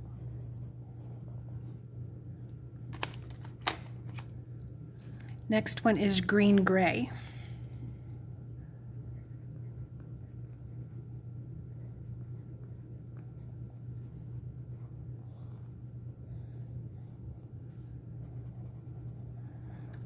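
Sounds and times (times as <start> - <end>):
pencil scratching on paper: 0.0 - 1.8, 11.7 - 17.5, 18.2 - 20.0
steady low hum: 0.0 - 20.0.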